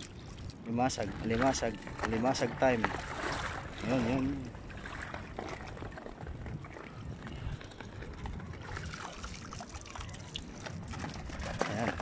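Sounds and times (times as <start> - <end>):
water sloshing around wading legs: 0.0 - 12.0
small splashes and drips: 2.8 - 6.1, 8.6 - 12.0.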